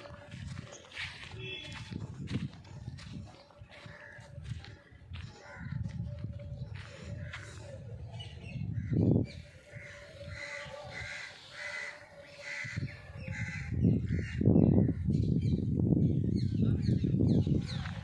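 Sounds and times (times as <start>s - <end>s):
wind rumble on microphone: 0.0s - 11.3s, 12.4s - 18.0s
crow cawing: 9.7s - 14.4s.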